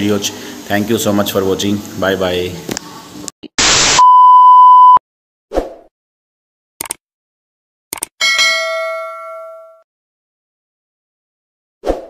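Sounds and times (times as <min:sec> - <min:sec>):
quick double clicks: 0:06.8 - 0:07.0, 0:07.9 - 0:08.1
bright bell ding: 0:08.2 - 0:09.8.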